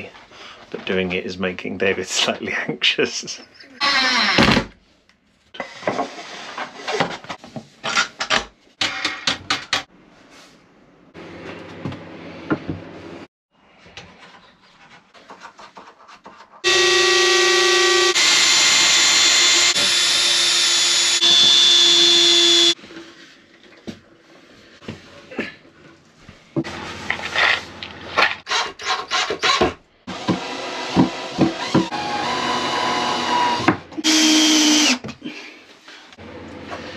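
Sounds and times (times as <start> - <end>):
cordless drill boring into wood: 16.6 - 22.8, 28.5 - 35.0.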